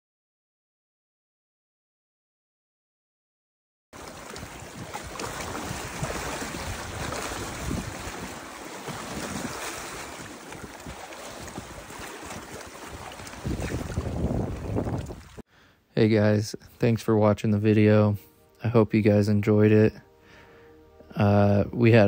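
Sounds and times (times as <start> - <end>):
wind buffeting microphone: 4.0 - 15.4
water lapping at rocky shore: 4.0 - 15.5.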